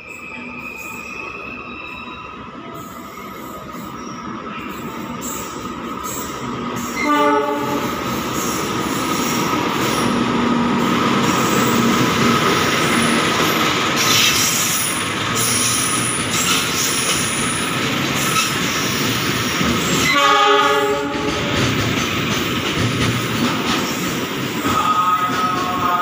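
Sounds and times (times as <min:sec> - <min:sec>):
high wheel squeal: 0:00.0 - 0:07.2
freight train rumbling and rattling: 0:00.0 - 0:26.0
train horn blast: 0:07.0 - 0:08.0, 0:20.0 - 0:21.4.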